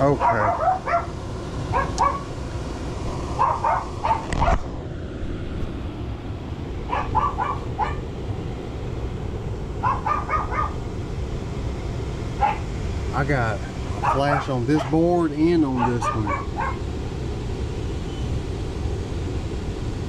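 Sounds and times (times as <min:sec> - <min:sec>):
low background rumble: 0:00.0 - 0:20.0
dog barking: 0:00.1 - 0:01.1, 0:01.7 - 0:02.3, 0:03.4 - 0:04.6, 0:06.9 - 0:08.0, 0:09.8 - 0:10.8, 0:12.4 - 0:12.7, 0:14.0 - 0:15.0, 0:15.7 - 0:16.8.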